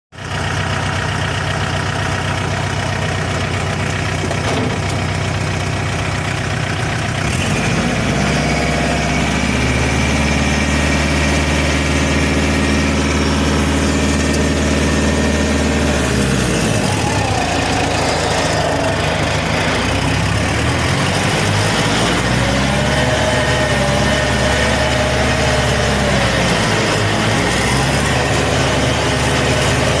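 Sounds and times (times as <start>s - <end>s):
tractor engine running: 0.1s - 30.0s.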